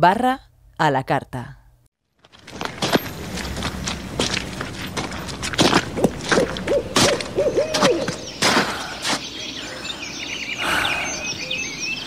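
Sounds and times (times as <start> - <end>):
small birds chirping: 4.9 - 12.0
owl hooting: 6.6 - 12.0.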